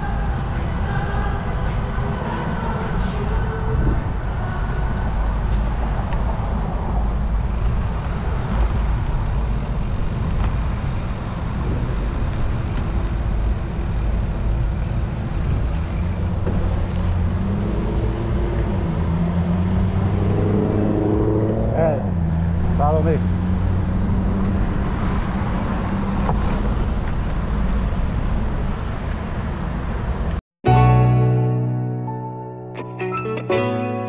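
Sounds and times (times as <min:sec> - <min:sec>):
wind rush: 0:00.0 - 0:21.6
road traffic: 0:00.0 - 0:30.4.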